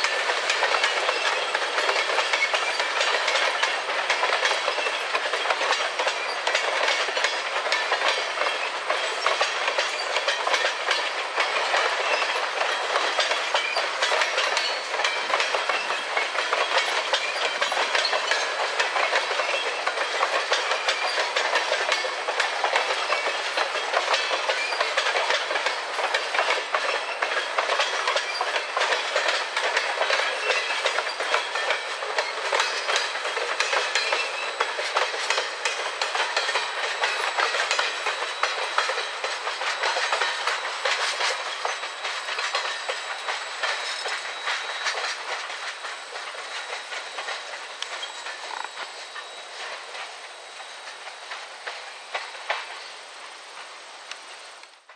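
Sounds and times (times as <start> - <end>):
train wheels clicking over rails: 0.0 - 54.9.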